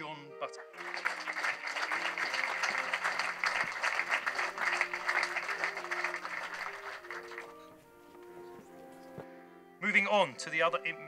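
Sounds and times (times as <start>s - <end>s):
soft background music: 0.0s - 11.0s
audience applauding: 0.8s - 7.8s.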